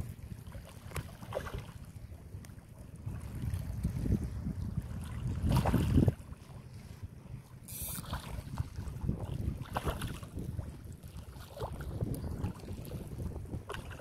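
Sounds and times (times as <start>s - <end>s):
wind buffeting microphone: 0.0s - 14.0s
fish splashing in water: 9.6s - 10.4s.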